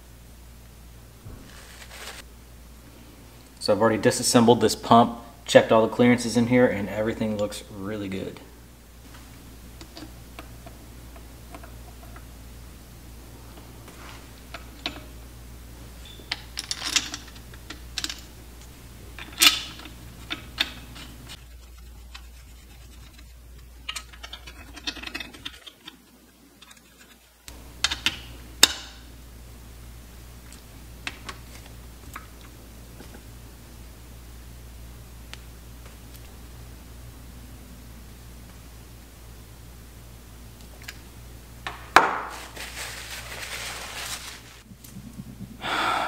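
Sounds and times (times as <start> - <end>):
steady low hum: 0.0 - 46.0
metal parts and tools clicking: 16.1 - 18.3, 23.8 - 26.0.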